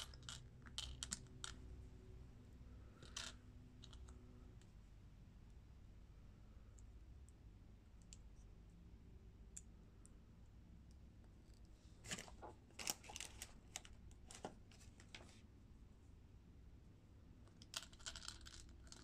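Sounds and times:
plastic parts clicking and crackling: 12.1s - 15.2s.

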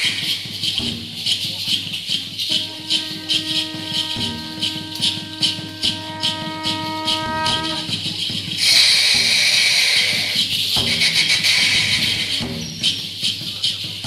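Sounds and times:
rattles shaking a beat: 0.0s - 14.0s
long horn-like tone: 2.5s - 7.9s.

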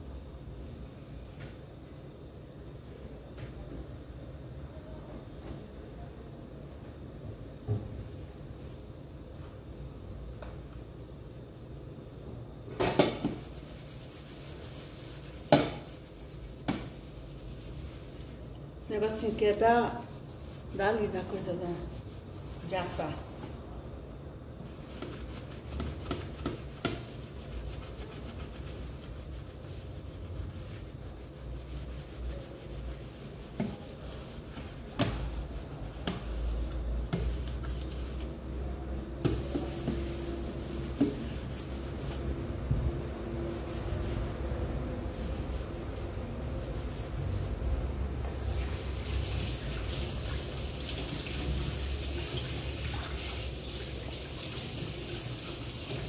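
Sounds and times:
tap water running into sink: 48.6s - 56.0s.

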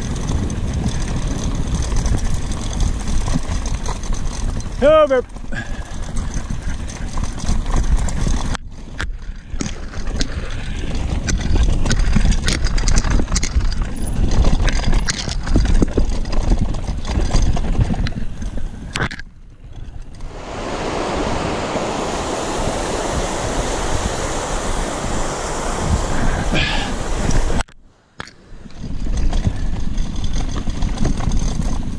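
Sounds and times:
sharp clicks and rattles: 0.0s - 20.3s, 27.2s - 31.9s
wind noise on microphone: 0.0s - 31.9s
steady rushing noise: 20.0s - 31.9s.

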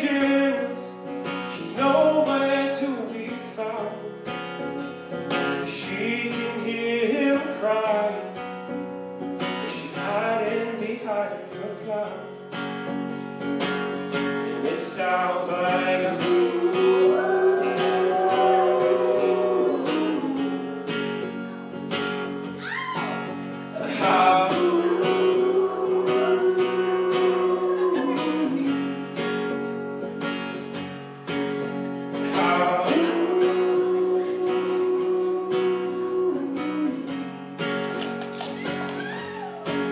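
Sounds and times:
man singing: 0.0s - 0.8s, 1.5s - 4.3s, 5.3s - 8.4s, 9.6s - 12.3s, 14.4s - 21.3s, 23.7s - 29.4s, 32.2s - 37.4s
acoustic guitar strummed: 0.0s - 39.9s.

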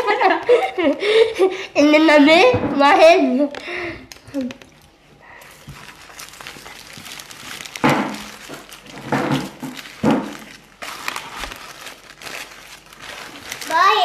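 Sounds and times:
paper bag rustling: 3.3s - 14.0s
thuds on a table: 9.0s - 10.4s.

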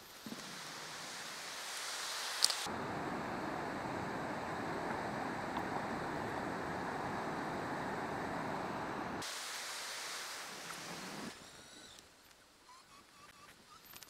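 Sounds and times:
high-pitched hiss: 0.0s - 14.0s
waterfall roaring: 0.4s - 11.3s.

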